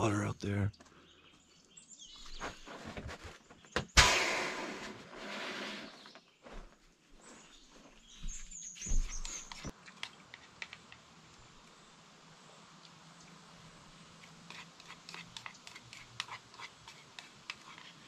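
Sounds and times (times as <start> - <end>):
bird chirping: 0.0 - 4.0, 7.2 - 9.7
rustling of camp gear: 2.0 - 3.8, 4.8 - 10.6
sharp knock: 3.9 - 4.8.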